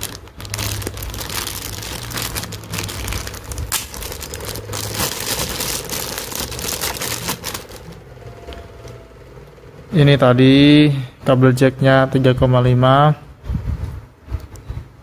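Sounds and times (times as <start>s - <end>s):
plastic bag crinkling: 0.0s - 8.1s
low hum: 0.0s - 10.4s.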